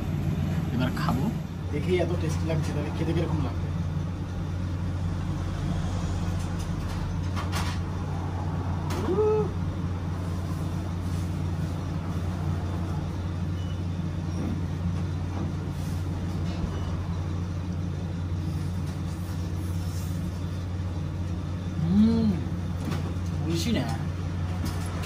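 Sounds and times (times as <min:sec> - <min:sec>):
low machine hum: 0:00.0 - 0:25.0
short rising vocal hum: 0:08.1 - 0:09.8.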